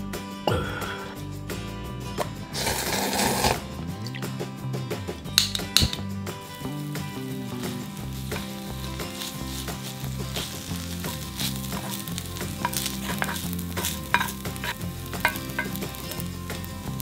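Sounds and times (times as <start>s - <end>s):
food sizzling in a frying pan: 2.6s - 3.6s, 6.4s - 17.0s
spatula clicking on a pan: 5.4s - 6.0s, 9.2s - 17.0s
wooden spatula scraping a pan: 8.2s - 17.0s.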